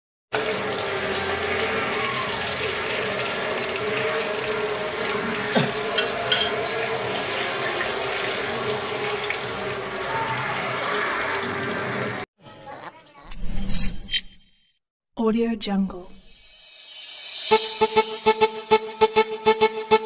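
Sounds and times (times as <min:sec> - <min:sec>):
fish sizzling in oil: 0:00.4 - 0:12.2.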